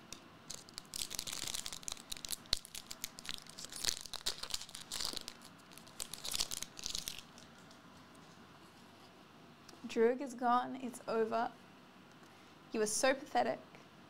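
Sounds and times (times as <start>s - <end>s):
foil wrapper crinkling and tearing: 0.5s - 7.6s.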